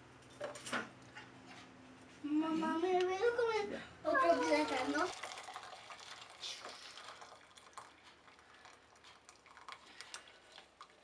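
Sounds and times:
water trickling into a strainer: 4.5s - 11.0s.

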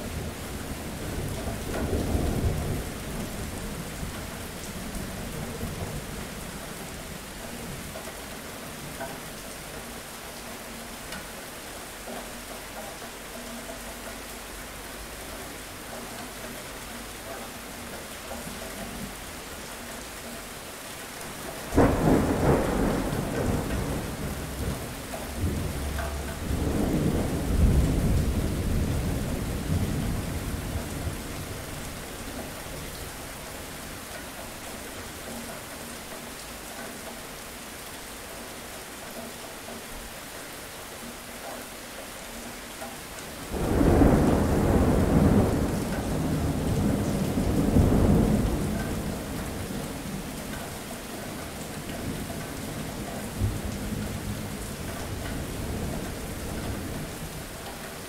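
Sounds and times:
steady rain: 0.0s - 58.0s
thunder rolling: 21.8s - 31.7s, 43.5s - 49.7s.

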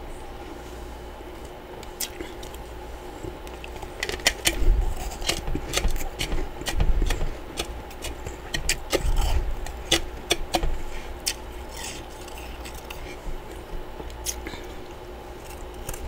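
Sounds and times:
frost chunks crunching: 3.4s - 10.6s, 11.2s - 14.7s.

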